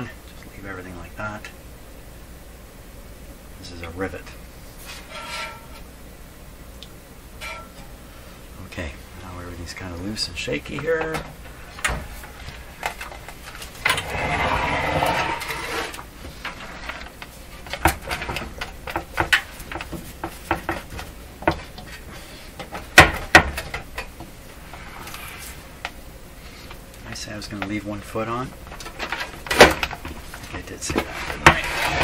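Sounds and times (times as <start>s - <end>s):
scraping rub: 4.8s - 5.8s, 13.8s - 17.0s, 24.6s - 25.7s, 30.8s - 32.0s.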